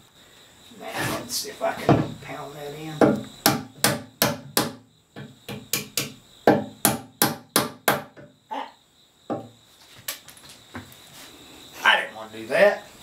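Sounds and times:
hammer striking wooden wedge: 0:03.0 - 0:08.3.

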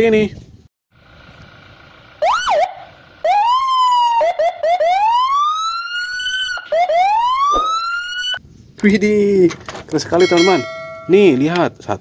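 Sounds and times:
police siren: 0:02.2 - 0:08.4.

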